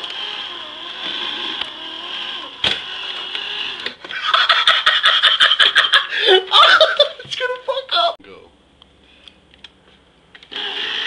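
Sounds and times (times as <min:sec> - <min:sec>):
electric can opener whining: 0:00.0 - 0:04.0, 0:10.4 - 0:11.0.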